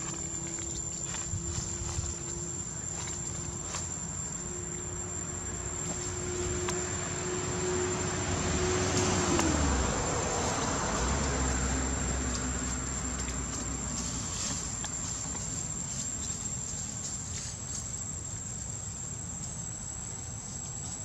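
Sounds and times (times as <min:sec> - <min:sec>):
high-pitched insect drone: 0:00.0 - 0:21.0
vehicle passing by: 0:05.3 - 0:16.4.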